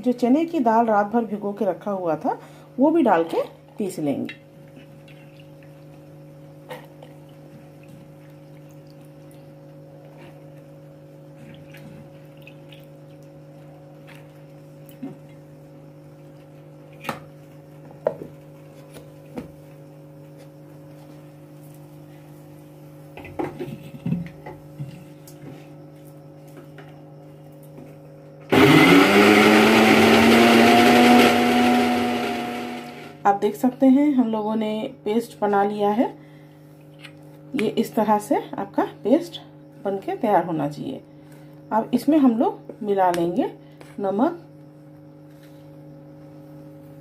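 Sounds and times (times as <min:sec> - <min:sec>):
electric mixer grinder grinding: 0:28.5 - 0:33.2.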